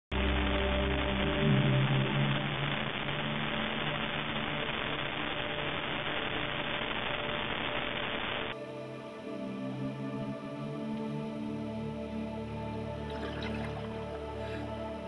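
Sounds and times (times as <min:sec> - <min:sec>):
muffled underwater hiss: 0:08.3 - 0:15.0.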